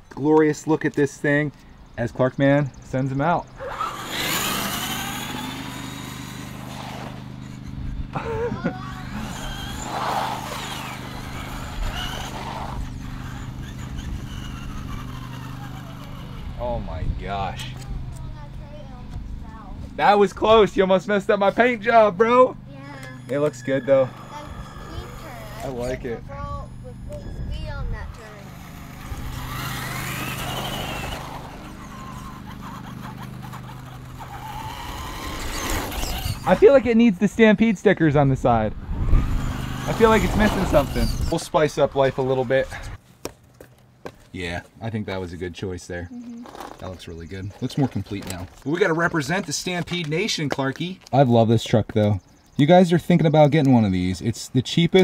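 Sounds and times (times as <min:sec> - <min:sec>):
steady low hum: 0:01.2 - 0:43.0
electric motor whining: 0:03.4 - 0:19.3, 0:20.0 - 0:37.1, 0:38.7 - 0:43.0
tyre noise on concrete: 0:39.6 - 0:44.8.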